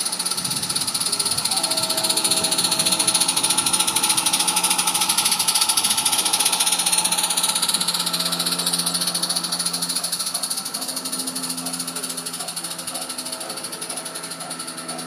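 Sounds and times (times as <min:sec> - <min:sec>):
steam hiss: 0:00.0 - 0:15.0
steam locomotive chuffing: 0:00.0 - 0:15.0.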